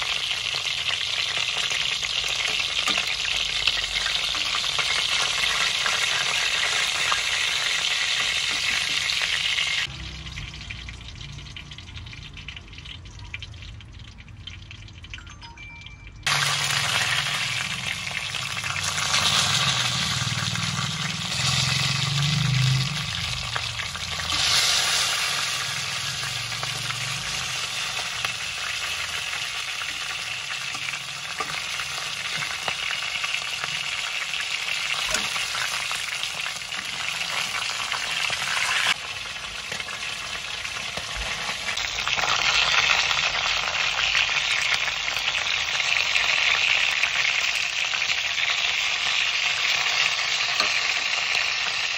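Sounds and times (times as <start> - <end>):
chicken sizzling in hot oil: 0.0 - 15.2, 16.2 - 51.9.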